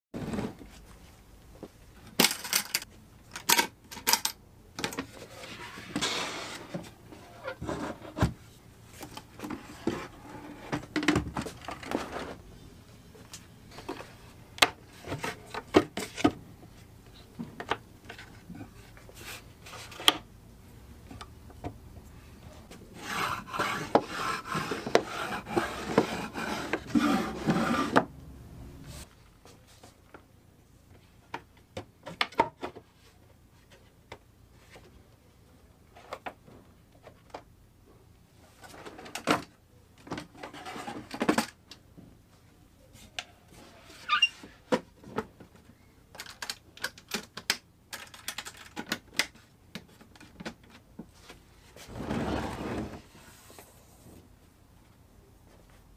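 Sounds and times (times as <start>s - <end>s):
wood rubbing and scraping: 22.6s - 28.1s.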